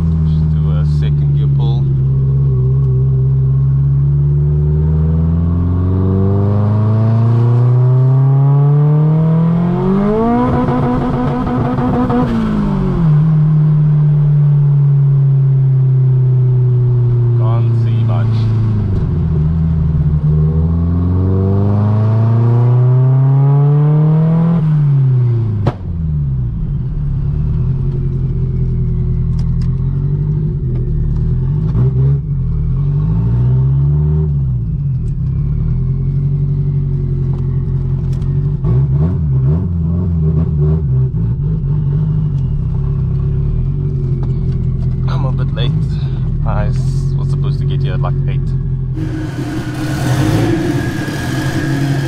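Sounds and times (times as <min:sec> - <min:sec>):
turbocharged car engine revving: 0:04.0 - 0:14.3, 0:16.9 - 0:25.6, 0:48.9 - 0:52.0.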